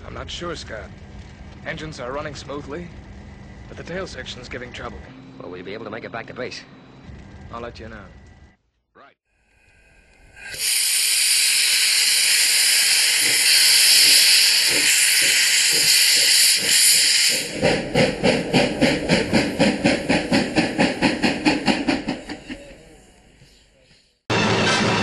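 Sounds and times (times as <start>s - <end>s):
steam engine exhaust beats: 0.0s - 8.6s, 9.4s - 25.0s
steam hissing: 9.4s - 24.2s.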